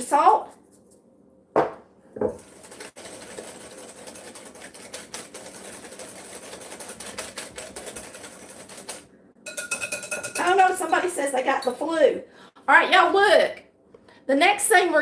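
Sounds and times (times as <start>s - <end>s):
whisk tapping a glass bowl: 2.2s - 11.2s.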